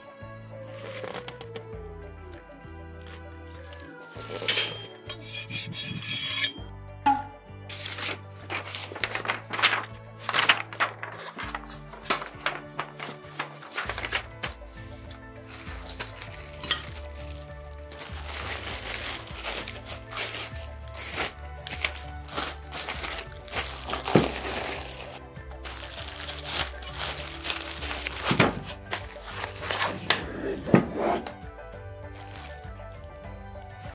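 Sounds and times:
background music: 0.0s - 33.9s
cloth bag rustling: 7.7s - 33.2s.

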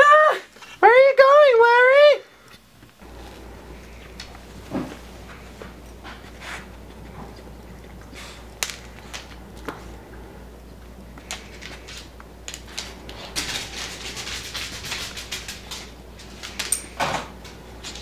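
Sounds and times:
dog claws clicking on floor: 7.7s - 9.8s, 11.2s - 18.0s
dog scuffling: 11.2s - 18.0s.

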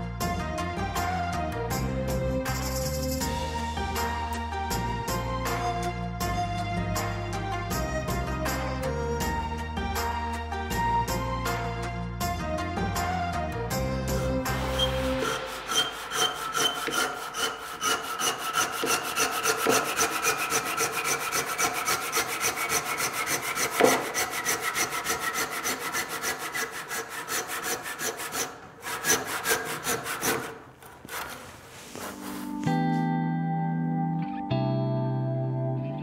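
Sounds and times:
handsaw cutting wood: 14.1s - 32.6s.

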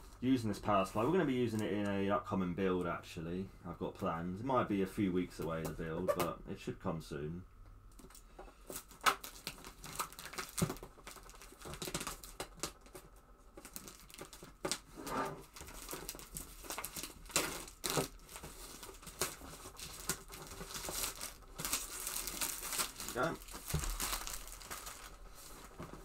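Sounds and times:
plastic wrap crinkling and tearing: 8.0s - 26.0s.

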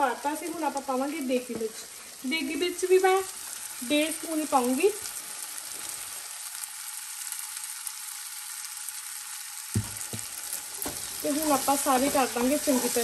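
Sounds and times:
food sizzling in a frying pan: 0.0s - 13.0s
soft knocks: 9.8s - 11.0s.

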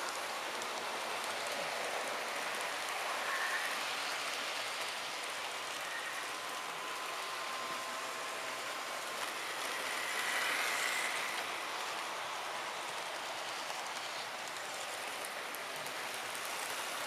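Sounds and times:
faint steady whine: 0.0s - 17.0s
model trains running on rails: 0.0s - 17.0s.

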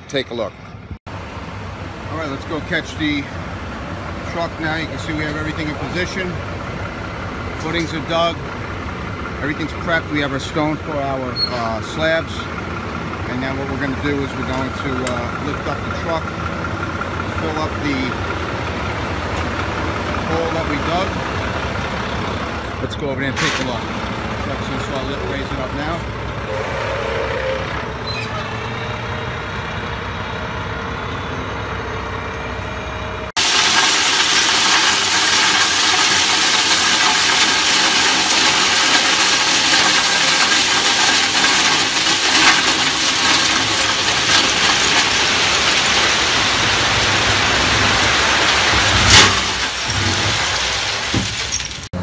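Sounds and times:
truck engine running: 0.0s - 52.0s
gravel pouring from truck bed: 17.4s - 18.2s, 20.2s - 21.1s, 33.4s - 51.9s.

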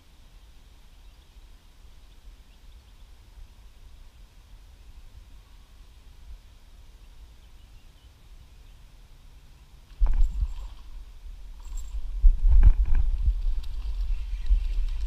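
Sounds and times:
microphone handling noise: 10.0s - 15.0s
wind buffeting microphone: 10.0s - 15.0s.

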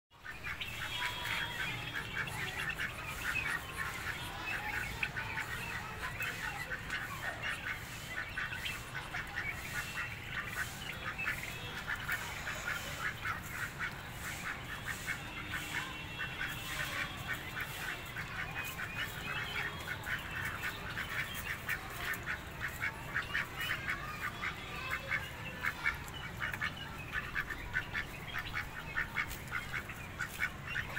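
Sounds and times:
ducks quacking: 0.2s - 30.9s.

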